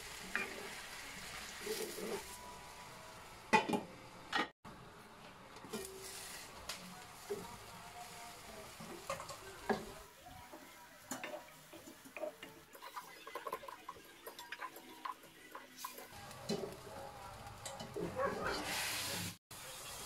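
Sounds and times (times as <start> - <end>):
wooden spatula scraping wok: 0.3 - 2.4.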